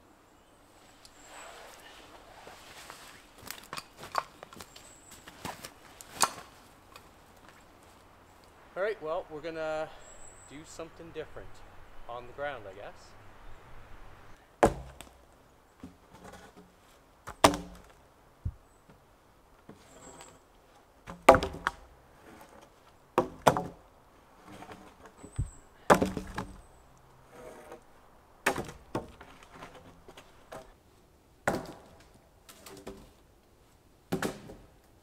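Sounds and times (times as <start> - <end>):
wooden logs thudding: 3.4 - 7.6, 14.5 - 19.0, 21.0 - 26.9, 28.4 - 30.8, 31.4 - 33.2, 34.1 - 34.8.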